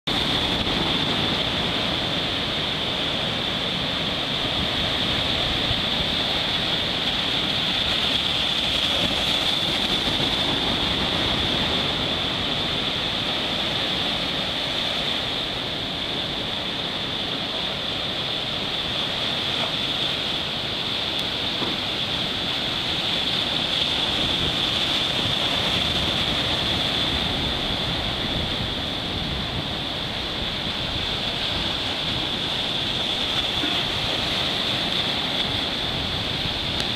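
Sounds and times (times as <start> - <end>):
surf breaking over rocks: 0.1 - 36.9.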